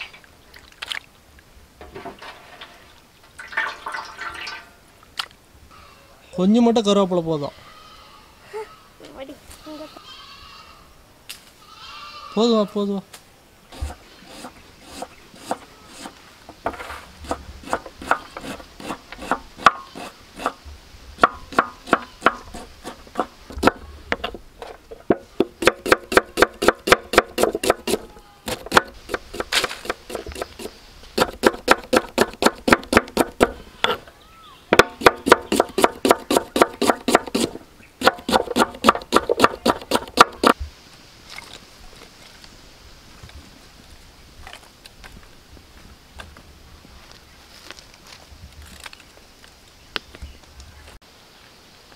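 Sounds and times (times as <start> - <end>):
knife chopping on wooden board: 21.2 - 23.8, 25.1 - 34.0, 34.8 - 40.6.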